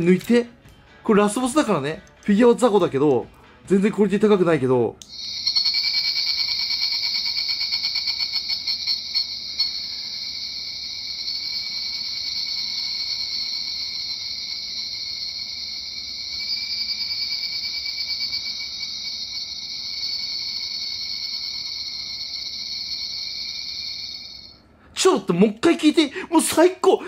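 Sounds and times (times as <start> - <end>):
cicada chorus from small speaker: 5.1 - 24.6.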